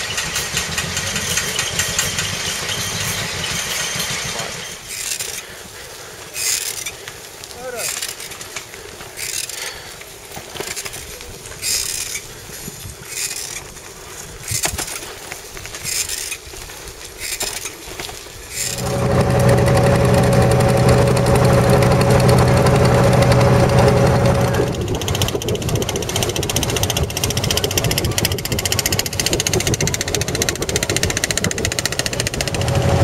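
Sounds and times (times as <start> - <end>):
boat engine running: 18.6 - 33.0.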